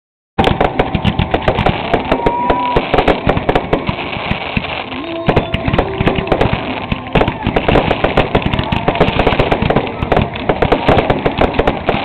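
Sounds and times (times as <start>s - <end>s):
fireworks banging and crackling: 0.4s - 12.0s.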